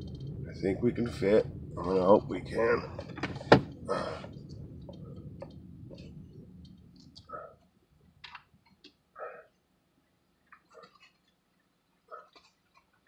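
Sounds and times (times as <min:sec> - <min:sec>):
faint clicks and ticks: 0:00.0 - 0:09.6, 0:10.4 - 0:13.0
car rumbling: 0:00.0 - 0:11.0.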